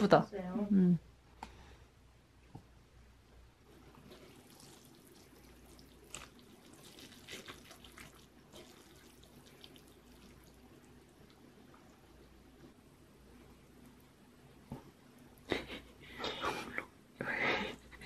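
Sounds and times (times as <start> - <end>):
noodles squishing wetly: 3.8 - 14.2.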